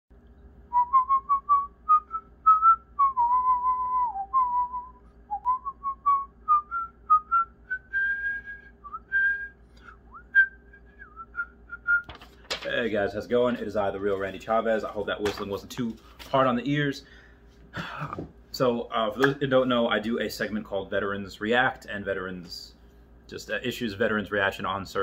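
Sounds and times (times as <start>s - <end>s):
person whistling a tune: 0.7s - 12.1s.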